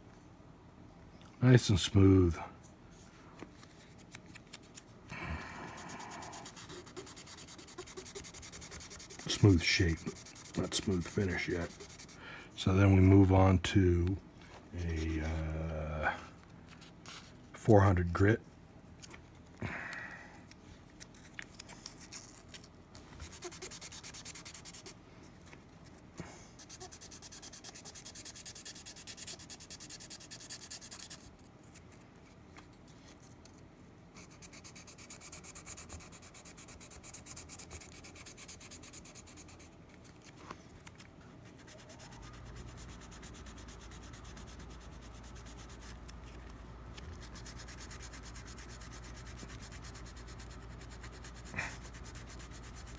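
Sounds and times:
sandpaper rubbing: 5.7 - 12.2, 23.2 - 25.0, 26.6 - 31.3, 34.2 - 39.8, 41.4 - 52.9.

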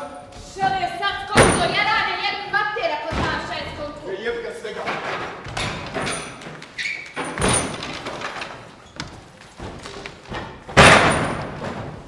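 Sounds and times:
loud slams and thumps: 9.6 - 12.0.

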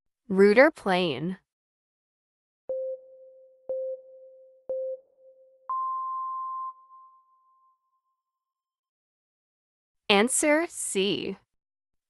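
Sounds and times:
short timer beeps: 2.7 - 7.2
long high timer beep: 2.7 - 7.7.

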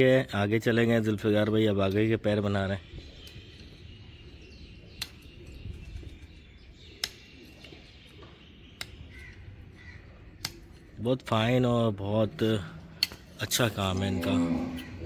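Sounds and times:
faint bird calls: 2.8 - 11.3
sharp tool clicks: 10.4 - 10.7.

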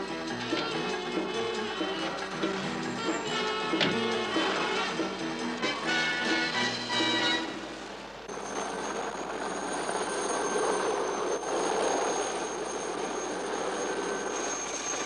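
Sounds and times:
helicopter turbine whine: 0.0 - 15.0
helicopter rotor rushing: 7.7 - 15.0.

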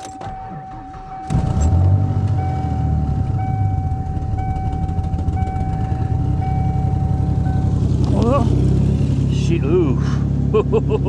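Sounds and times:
car warning chime dinging: 0.0 - 8.2
car engine rumbling: 0.0 - 11.0.

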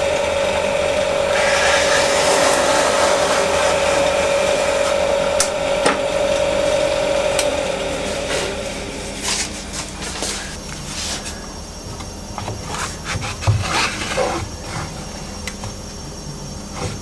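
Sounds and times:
drill bit cutting wood: 0.0 - 9.1.

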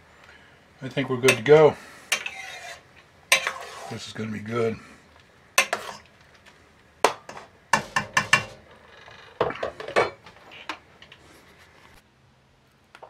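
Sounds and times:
metal spoon clinking in a pot: 2.1 - 3.8, 5.6 - 6.1.

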